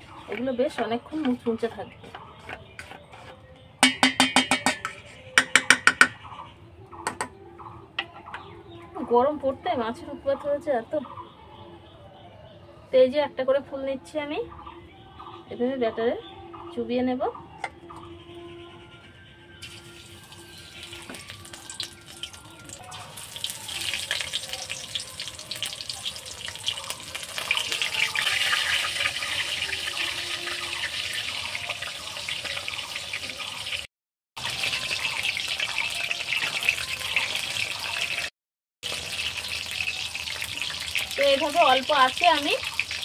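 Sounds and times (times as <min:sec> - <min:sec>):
battered food deep-frying in oil: 0:19.6 - 0:43.0.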